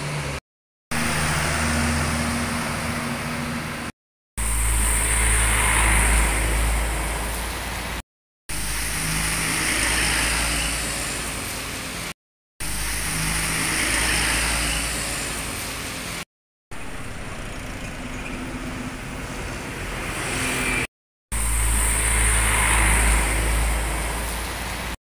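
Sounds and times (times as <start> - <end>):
tyre hiss on wet road: 21.4 - 25.0.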